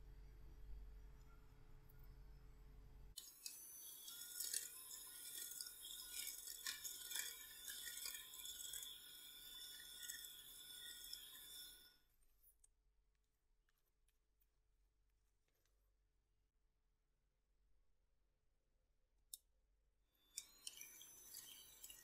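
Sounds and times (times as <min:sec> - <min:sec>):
electric hand mixer whining: 0:03.2 - 0:11.9, 0:20.3 - 0:22.0.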